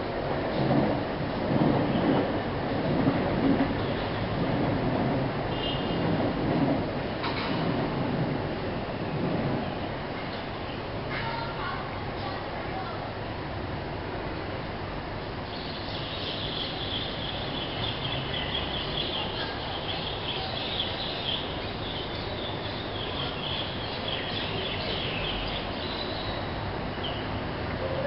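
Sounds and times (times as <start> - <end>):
steady background noise: 0.0 - 28.0
birds chirping: 15.5 - 27.4.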